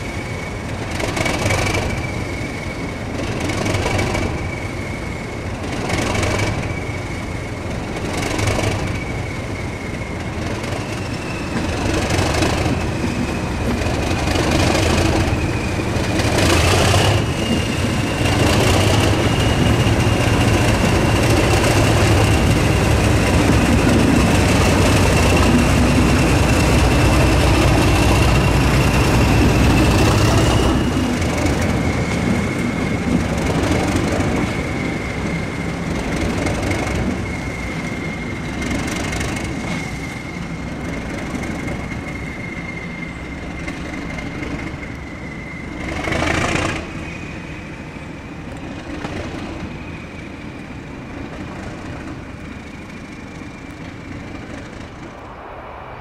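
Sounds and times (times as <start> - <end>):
freight train engine rumble: 0.0 - 56.0
train rushing by: 0.0 - 56.0
train wheels high-pitched whine: 0.0 - 56.0.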